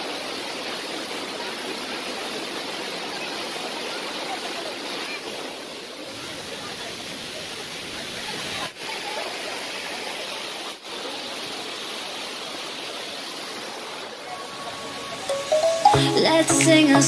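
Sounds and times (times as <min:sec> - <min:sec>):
waterfall roaring: 0:00.0 - 0:17.0.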